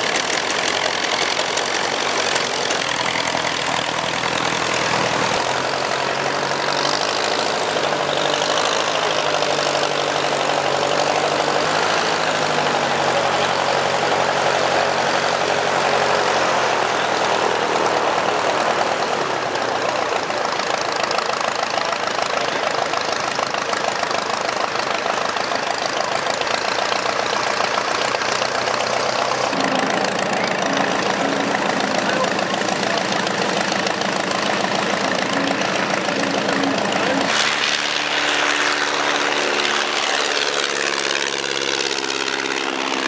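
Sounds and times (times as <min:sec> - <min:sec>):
propeller aircraft engine running: 0:00.0 - 0:43.0.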